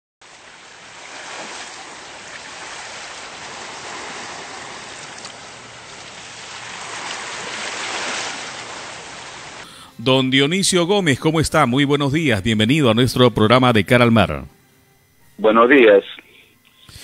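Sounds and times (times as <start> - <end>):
sea surf washing in: 0.2 - 9.7.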